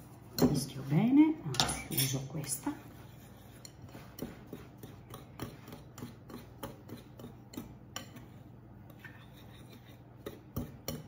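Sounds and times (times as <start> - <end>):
whisk rubbing through flour: 0.0 - 1.1, 2.4 - 11.0
whisk ticking against bowl: 3.2 - 9.0, 9.7 - 11.0.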